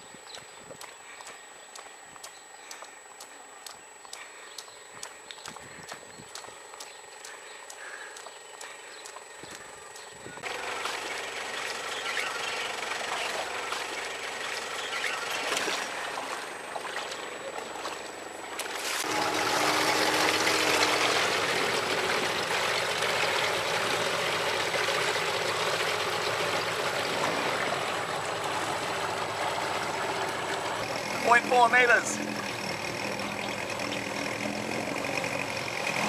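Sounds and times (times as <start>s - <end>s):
outboard motor boat: 0.0s - 36.0s
water sloshing and trickling: 10.4s - 31.2s.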